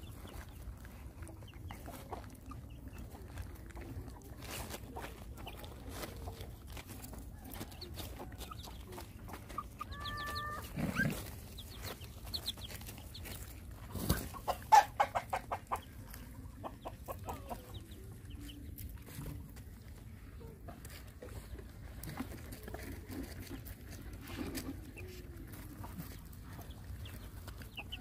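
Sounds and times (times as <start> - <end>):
chickens clucking: 0.0 - 28.0
drawn-out high chicken call: 9.5 - 11.4.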